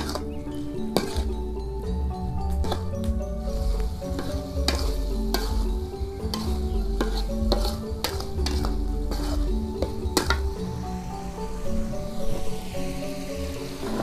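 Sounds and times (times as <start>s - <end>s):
metal spatula scraping a wok: 0.0s - 1.4s, 2.6s - 10.6s
background music: 0.0s - 14.0s
food sizzling in hot oil: 3.4s - 14.0s.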